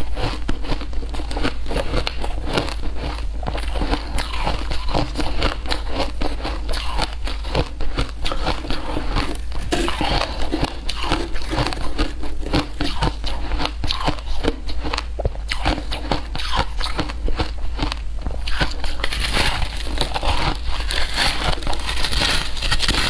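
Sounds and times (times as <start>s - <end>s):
shaved ice crunching: 18.5s - 23.0s.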